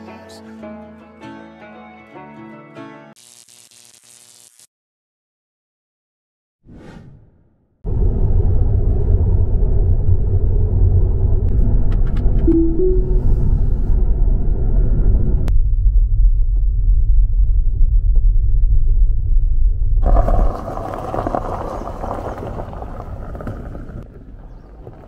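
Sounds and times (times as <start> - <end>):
background music: 0.0 - 3.1, 12.5 - 13.4
car cabin road rumble: 19.7 - 25.0
tyres rolling over gravel: 20.0 - 25.0.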